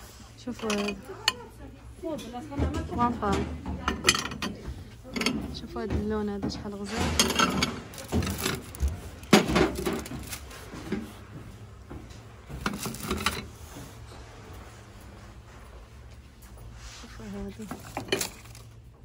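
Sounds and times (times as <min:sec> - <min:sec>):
ceramic dishes scraping and knocking: 0:00.5 - 0:01.4, 0:02.6 - 0:11.1, 0:12.5 - 0:13.6, 0:17.6 - 0:18.5.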